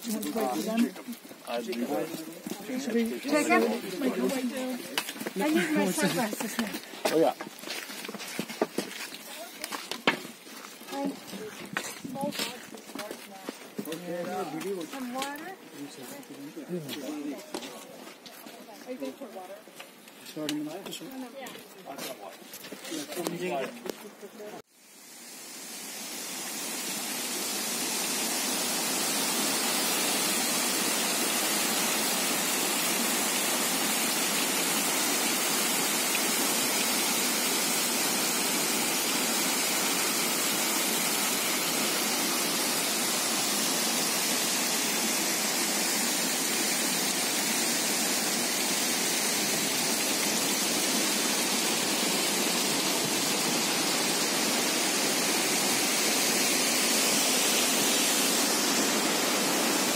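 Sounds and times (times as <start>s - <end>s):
waterfall rushing: 25.1s - 59.9s.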